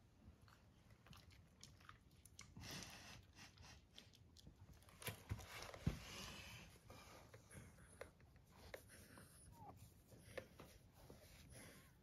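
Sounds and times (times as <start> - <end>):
puppy mouth clicking and smacking: 0.4 - 5.8.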